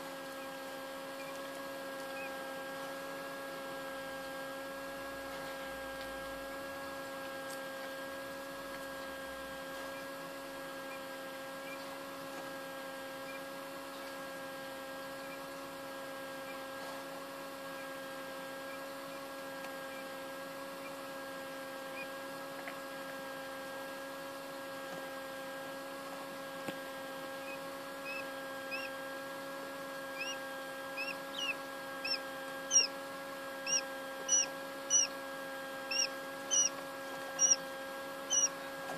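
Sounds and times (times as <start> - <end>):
incubator fan hum: 0.0 - 38.9
quail chick peeping: 27.4 - 29.0, 30.0 - 35.2, 35.8 - 38.8.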